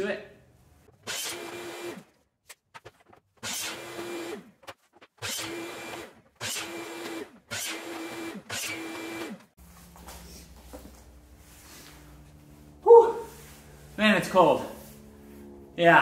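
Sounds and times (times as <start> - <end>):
miter saw cutting plastic pipe: 0.9 - 2.2, 3.0 - 9.5.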